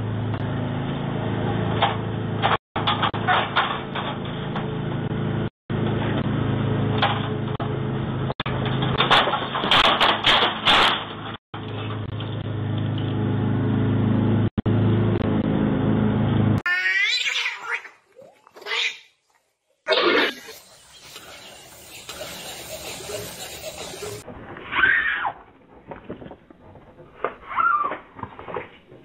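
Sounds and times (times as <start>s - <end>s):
cat meowing: 16.7s - 18.0s.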